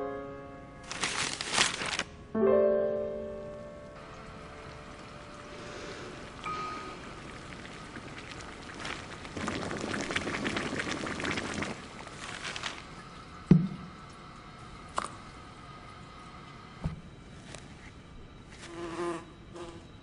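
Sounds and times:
water splashing and bubbling: 4.0 - 16.4.

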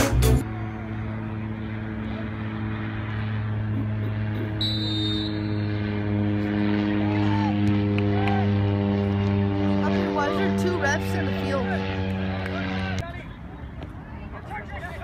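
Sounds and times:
steady low hum: 0.0 - 13.1
referee's whistle blast: 4.6 - 5.6.

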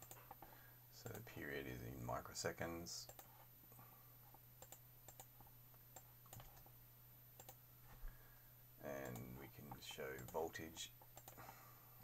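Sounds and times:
low steady hum: 0.0 - 12.0
mouse and keyboard clicks: 6.0 - 6.7.

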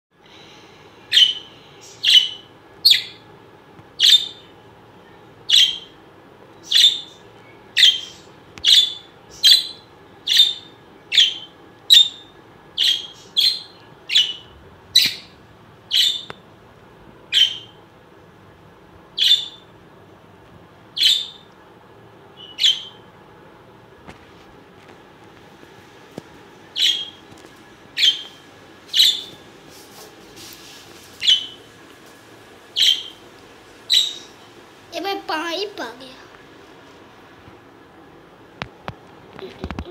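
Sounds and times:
parrot shrill calls: 7.8 - 14.4, 15.9 - 16.3, 19.2 - 19.6, 21.0 - 21.5, 22.4 - 23.0, 26.7 - 27.2, 28.9 - 29.3, 32.8 - 33.2, 33.9 - 34.3.

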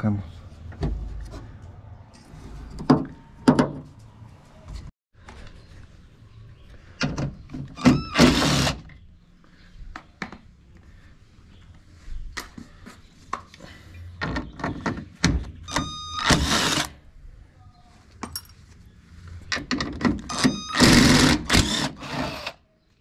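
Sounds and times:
power drill whining: 7.8 - 8.8, 20.3 - 22.6.

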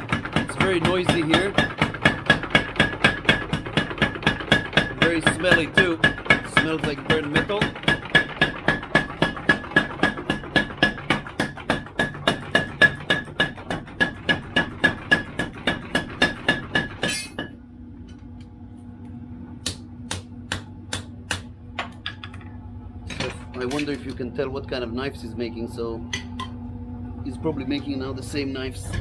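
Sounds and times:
low steady hum: 14.6 - 29.0.

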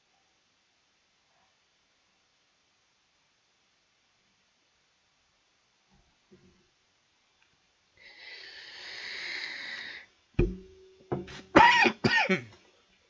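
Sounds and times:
sharp knock: 10.4 - 11.4
man coughing: 11.6 - 12.6.

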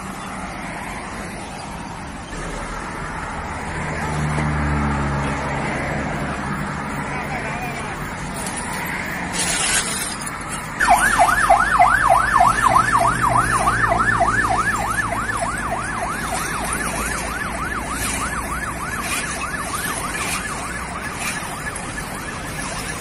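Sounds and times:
emergency siren yelping: 10.7 - 23.0.

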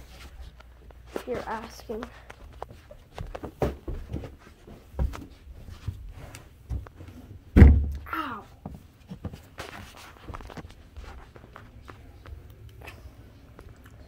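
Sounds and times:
handling knocks and bumps: 6.6 - 10.5
heavy thump: 7.5 - 8.0.

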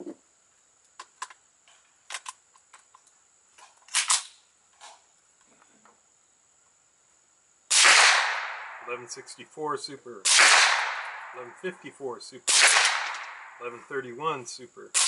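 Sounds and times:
rifle action clicks and clacks: 2.1 - 3.1
suppressed rifle shot: 7.7 - 9.0, 10.2 - 11.6, 12.5 - 13.6.

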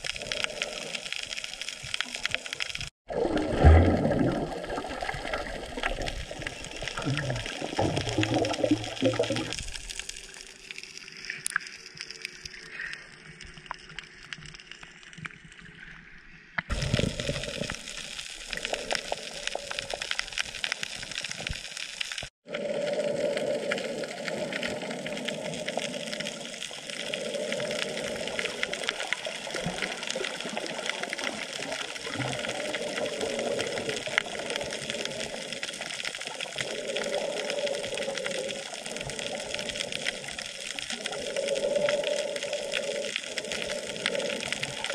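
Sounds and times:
water rushing and splashing: 0.0 - 11.7.

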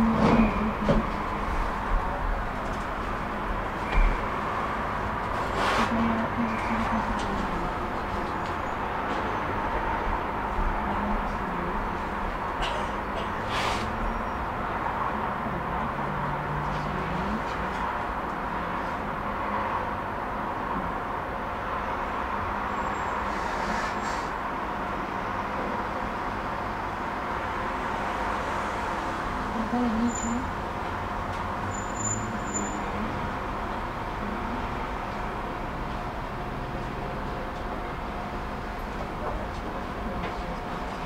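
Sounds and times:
tram wheels on rails: 0.0 - 41.0.

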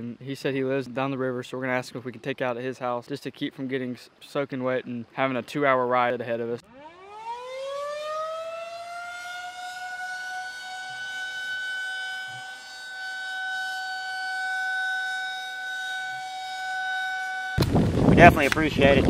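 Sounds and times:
warning siren wailing: 6.6 - 17.6.

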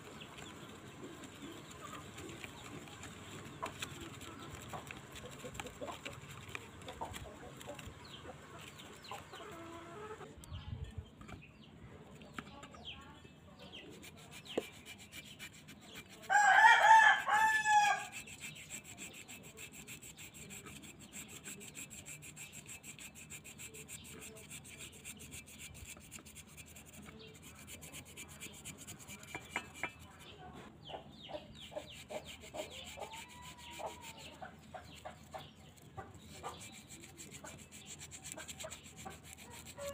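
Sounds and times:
stick scrubbing paste on metal: 0.0 - 10.1, 13.6 - 30.5, 31.4 - 39.9
rooster crowing: 16.3 - 18.2.

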